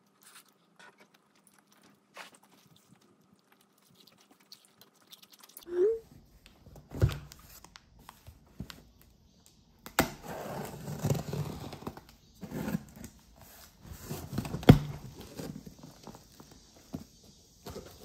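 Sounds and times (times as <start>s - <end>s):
cardboard flaps scraping and rustling: 10.2s - 18.0s.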